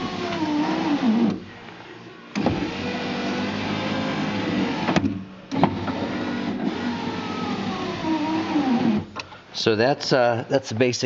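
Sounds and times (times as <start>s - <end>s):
window motor click: 0.0s - 1.4s, 2.3s - 9.1s
power window motor running: 0.0s - 1.5s, 2.3s - 9.1s.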